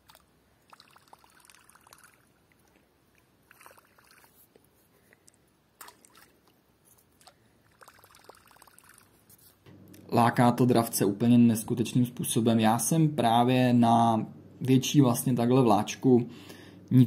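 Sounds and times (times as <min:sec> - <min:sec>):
fishing lure splashing on water: 0:00.0 - 0:02.3, 0:03.5 - 0:04.4, 0:05.8 - 0:09.1.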